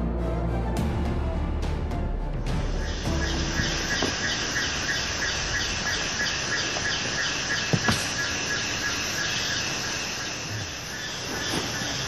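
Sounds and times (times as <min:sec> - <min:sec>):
forest insects chorus: 0:02.6 - 0:12.0.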